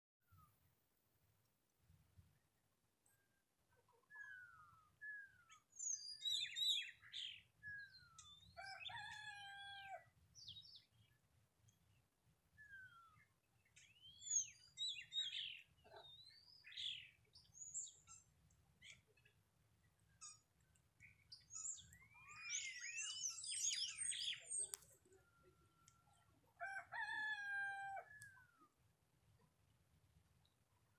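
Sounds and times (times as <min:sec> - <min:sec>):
wild birds singing: 0:03.0 - 0:28.8
rooster crowing: 0:08.6 - 0:10.0, 0:26.6 - 0:28.4.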